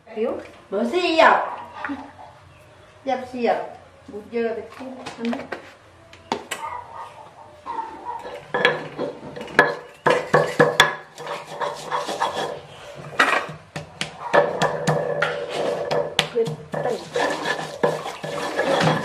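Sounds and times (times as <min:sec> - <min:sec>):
stone pestle knocking in mortar: 0:13.5 - 0:17.0.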